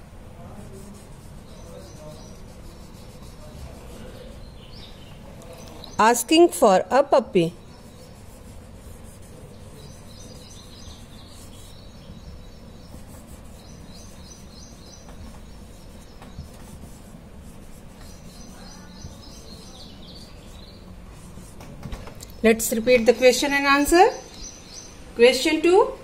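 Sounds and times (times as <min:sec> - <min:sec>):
low background hum: 0:00.0 - 0:26.0
marker on whiteboard: 0:00.4 - 0:24.1
small bird chirping: 0:09.4 - 0:17.0, 0:17.9 - 0:20.9, 0:22.2 - 0:25.0.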